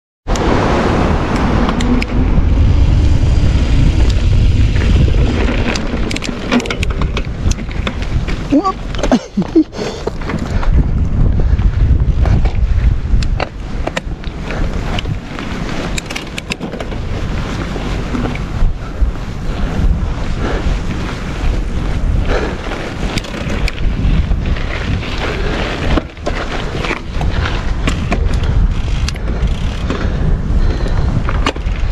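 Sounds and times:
wind buffeting microphone: 0:00.3 - 0:31.9
bike clicks and rattles: 0:01.3 - 0:31.9
tyres rolling over stones: 0:02.5 - 0:10.6, 0:22.5 - 0:28.3.

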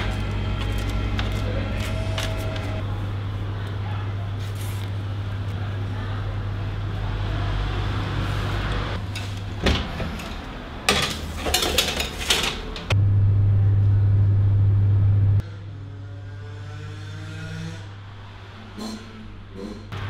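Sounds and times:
electric oven humming: 0:00.0 - 0:09.6, 0:12.7 - 0:15.4
metal baking tray clattering on rack: 0:09.2 - 0:12.9.

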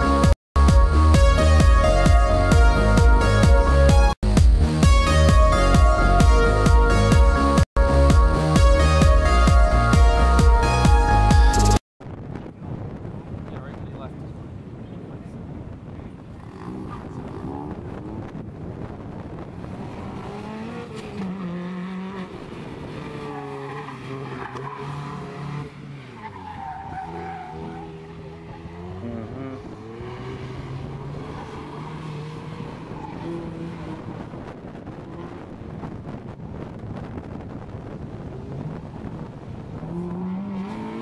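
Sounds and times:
car engine revving: 0:16.2 - 0:41.0
tire squeal: 0:22.2 - 0:34.4.

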